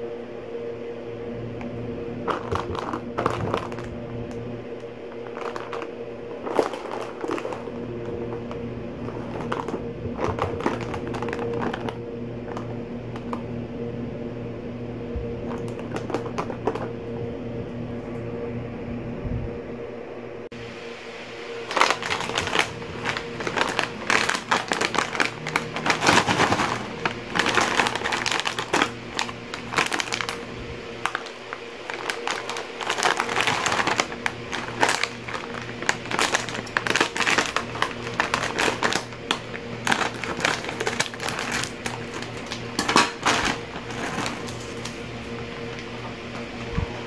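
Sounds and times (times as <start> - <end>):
bag tearing open: 2.2 - 4.0, 5.1 - 13.3, 21.6 - 30.4, 31.0 - 45.0
plastic snack bag crinkling: 2.2 - 13.4, 15.4 - 16.9, 21.6 - 45.4.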